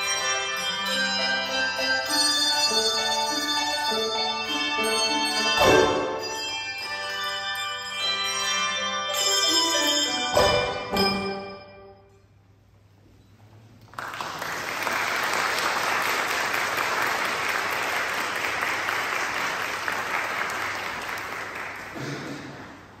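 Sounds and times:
audience applause: 0:13.8 - 0:23.0.

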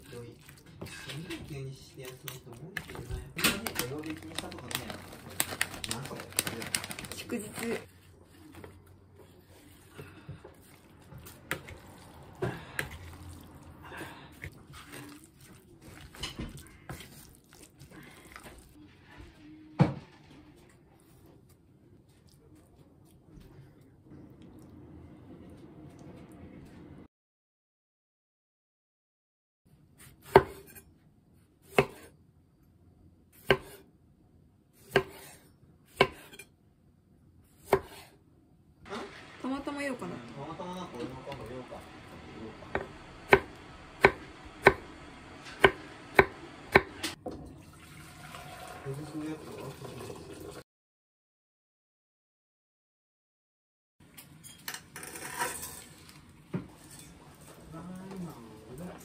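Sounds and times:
wet mixing noise: 0:00.0 - 0:19.4
knife cutting tomato: 0:30.0 - 0:30.9, 0:31.6 - 0:32.1, 0:33.4 - 0:33.8, 0:34.8 - 0:36.5, 0:37.5 - 0:38.2.

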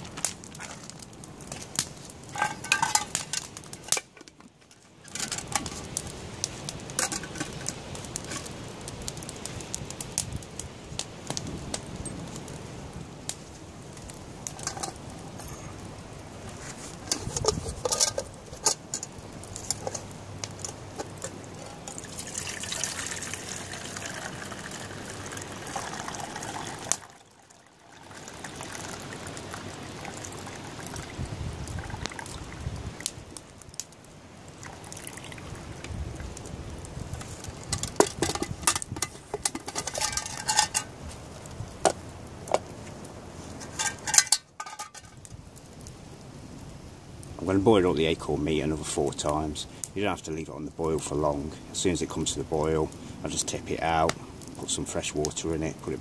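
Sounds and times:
metal pots clinking: 0:02.3 - 0:04.0, 0:07.0 - 0:07.7, 0:17.1 - 0:23.2, 0:37.7 - 0:40.9, 0:43.6 - 0:45.1
water pouring between pots: 0:02.3 - 0:04.0, 0:16.8 - 0:33.1, 0:34.6 - 0:36.3, 0:37.3 - 0:40.9, 0:43.6 - 0:45.1.

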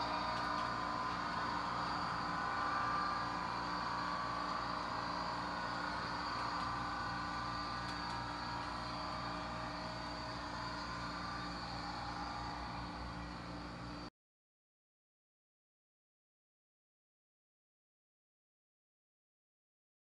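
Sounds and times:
diesel engine running drone: 0:00.0 - 0:14.1.

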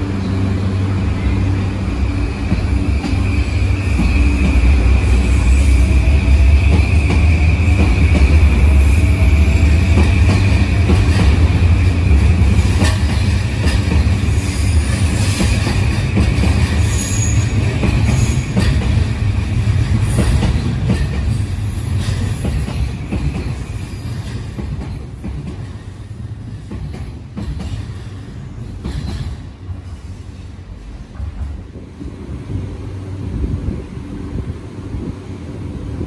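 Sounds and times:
train wheels rumbling on rails: 0:00.0 - 0:36.0
high wheel squeal: 0:16.8 - 0:27.3.

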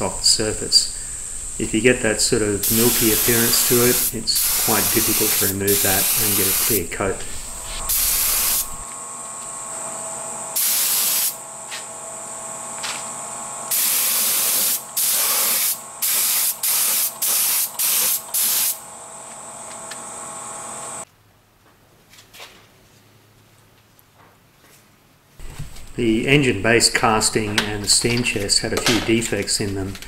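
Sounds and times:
steady hiss and hum: 0:00.0 - 0:20.0, 0:20.7 - 0:30.0
spray gun bursts: 0:02.6 - 0:08.8, 0:10.6 - 0:11.4, 0:13.7 - 0:18.8.

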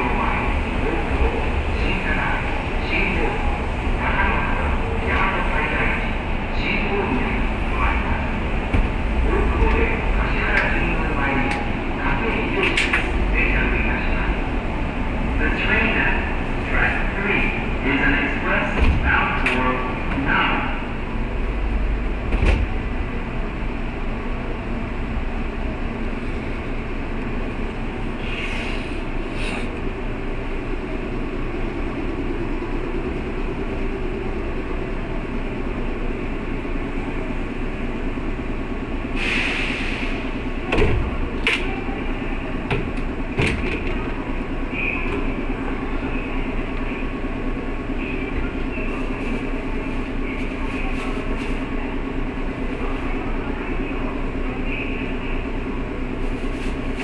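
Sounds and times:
train wheels rumbling on rails: 0:00.0 - 0:57.0
short hisses: 0:39.2 - 0:40.2.

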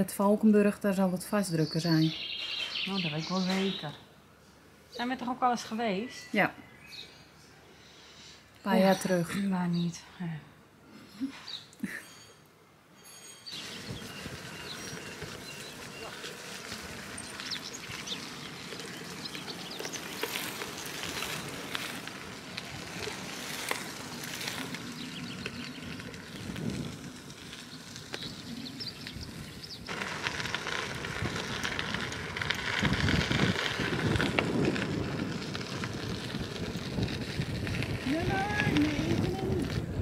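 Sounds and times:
bicycle tyres crackling on gravel: 0:01.5 - 0:04.0, 0:13.5 - 0:40.0
wind on the microphone: 0:25.2 - 0:29.9, 0:30.9 - 0:40.0.

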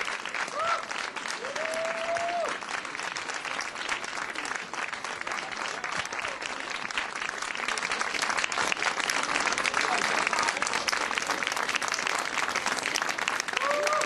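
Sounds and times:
audience applauding: 0:00.0 - 0:14.0
high-pitched cheer: 0:00.5 - 0:02.6, 0:13.5 - 0:14.0.

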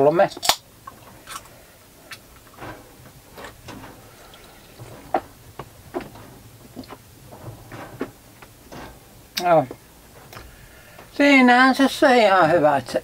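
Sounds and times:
faint background hiss: 0:00.0 - 0:13.0
light clicks and knocks: 0:00.0 - 0:13.0.

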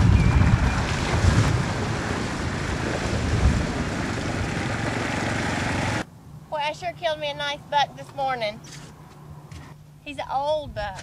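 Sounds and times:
wind buffeting microphone: 0:00.0 - 0:06.0
atv driving: 0:00.0 - 0:06.1.

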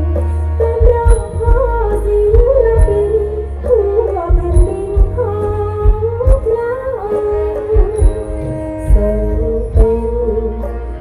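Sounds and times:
live band music: 0:00.0 - 0:11.0.

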